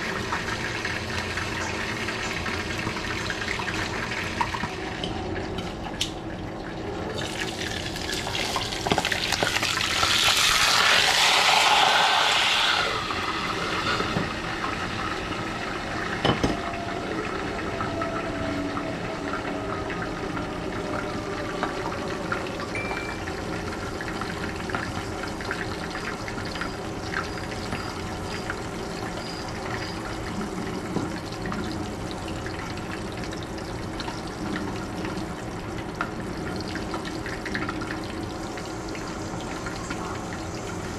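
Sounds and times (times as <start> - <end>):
fish sizzling in oil: 7.2 - 16.0.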